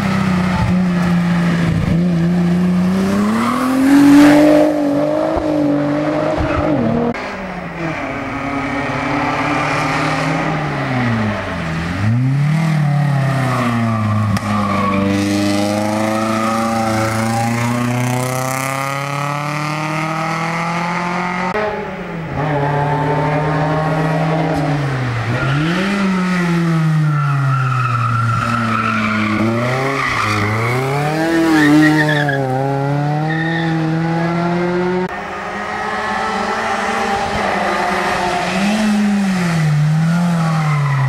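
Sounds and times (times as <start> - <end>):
race car engine revving: 0.0 - 27.2.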